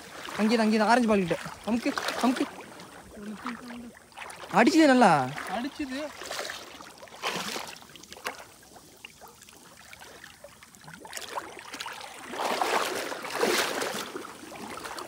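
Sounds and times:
water splashing and sloshing: 0.0s - 15.0s.

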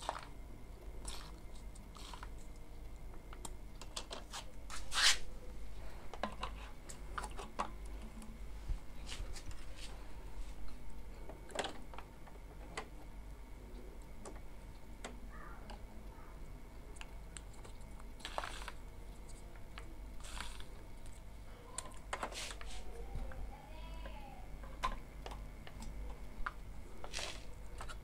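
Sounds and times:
plastic parts clicking and scraping: 6.1s - 8.4s.

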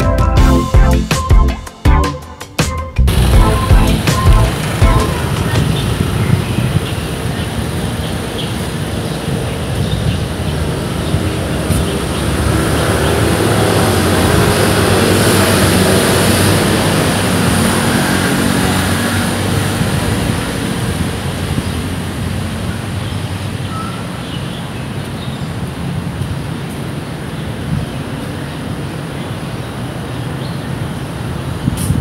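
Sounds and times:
engine passing by: 3.1s - 23.7s.

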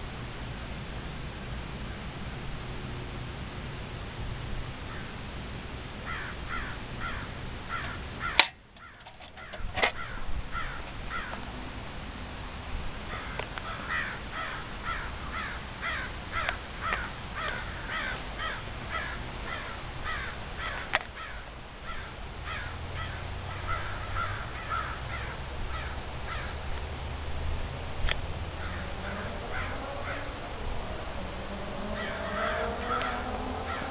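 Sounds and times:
crows calling: 4.8s - 5.2s, 6.0s - 11.5s, 13.1s - 26.7s, 28.5s - 33.9s.

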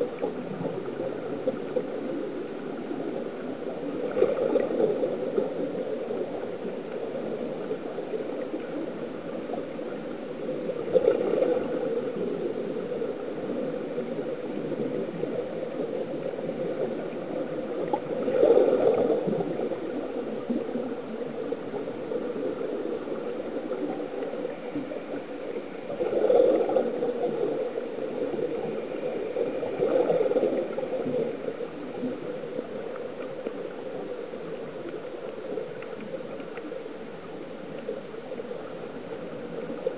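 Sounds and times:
muffled underwater rush: 0.0s - 39.9s
air bubbles bubbling: 4.0s - 5.0s, 29.5s - 31.4s.

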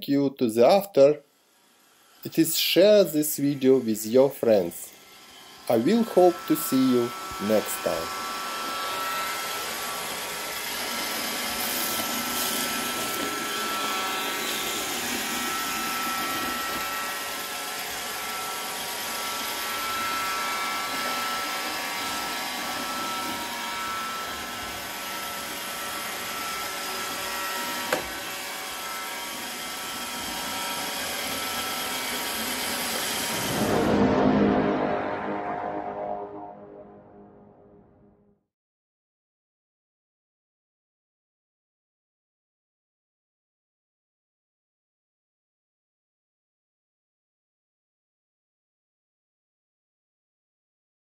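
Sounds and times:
robot vacuum cleaner whirring: 0.7s - 33.8s.

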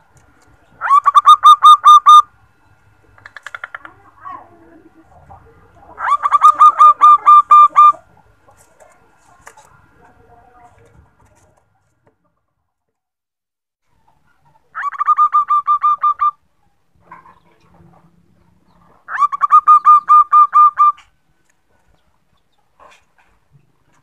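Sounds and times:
dove cooing: 3.1s - 8.5s, 14.7s - 16.4s, 18.7s - 21.1s.

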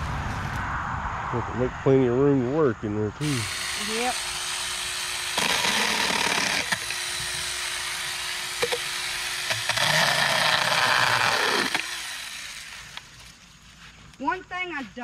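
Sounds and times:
battery chainsaw motor whining: 3.2s - 13.3s
chainsaw cutting branches: 3.2s - 13.3s.

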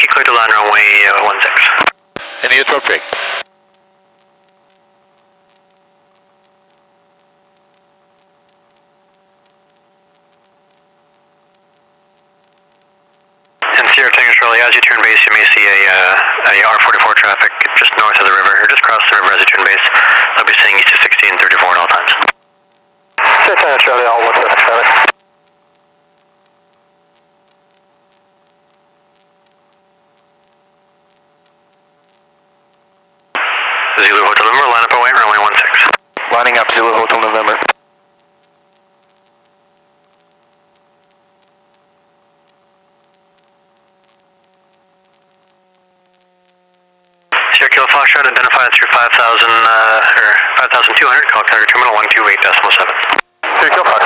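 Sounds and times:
electrical hum with high tone: 0.0s - 54.0s
faint radio clicks: 1.4s - 2.3s, 3.1s - 54.0s
static ticks: 3.1s - 54.0s.

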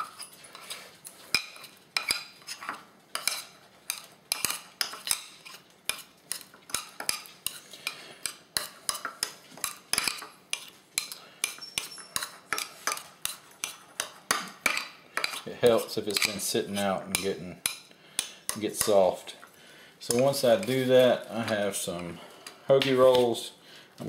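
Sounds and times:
utensil scraping ceramic bowl: 1.4s - 17.4s.

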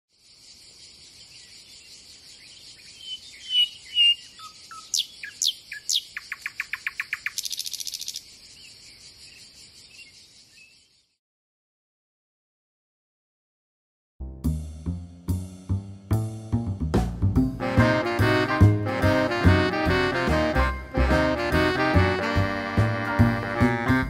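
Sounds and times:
insect chorus: 0.1s - 11.2s
birds singing: 0.2s - 11.2s.

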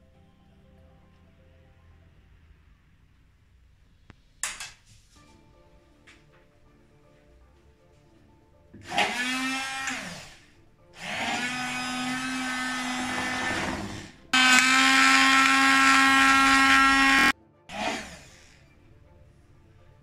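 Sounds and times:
immersion blender whirring: 8.8s - 10.4s, 11.0s - 18.6s.

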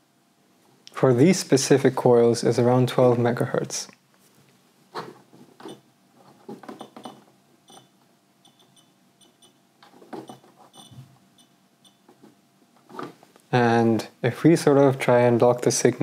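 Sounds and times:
high-pitched beeps: 7.7s - 9.6s, 10.7s - 12.0s.

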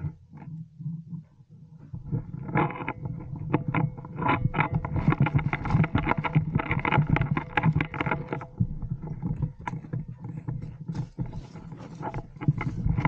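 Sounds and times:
clothing and gear rustling: 10.2s - 13.0s.

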